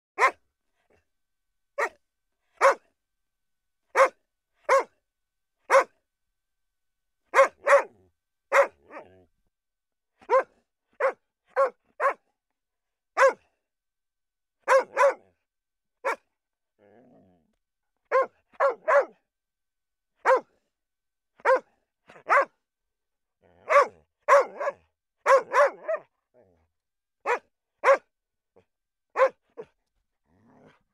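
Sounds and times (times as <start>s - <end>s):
dog yapping: 10.3s - 12.2s, 14.7s - 15.2s, 18.1s - 19.1s, 21.4s - 22.5s, 23.6s - 26.0s, 29.2s - 29.7s.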